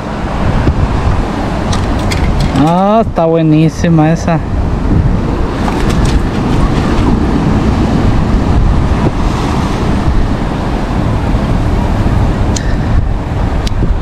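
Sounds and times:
ocean surf on a beach: 0.0s - 14.0s
wind buffeting microphone: 0.0s - 14.0s.

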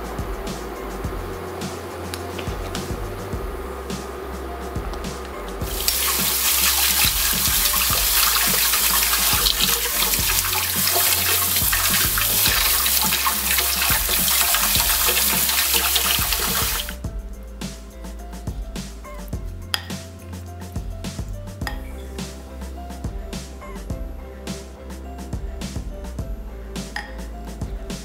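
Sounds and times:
faucet water splashing into sink: 5.7s - 17.0s.

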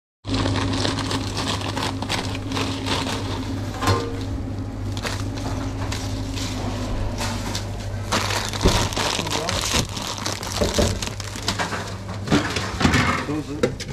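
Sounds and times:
foil bag crinkling: 0.2s - 12.7s
chips crackling and crunching: 0.3s - 3.6s, 7.6s - 12.2s
steady low hum: 0.3s - 13.9s.

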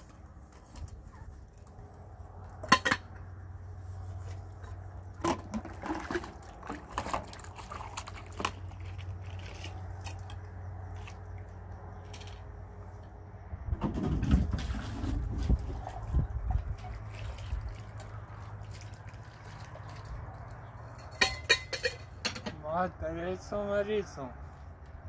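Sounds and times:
water splashing: 5.6s - 9.0s, 14.6s - 20.7s
metal cups clinking: 21.0s - 22.6s.

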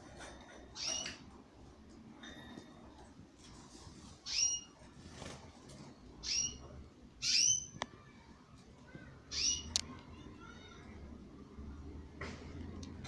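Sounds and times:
canary chirps: 0.2s - 1.4s, 4.1s - 5.3s, 6.1s - 8.2s, 9.2s - 10.6s.

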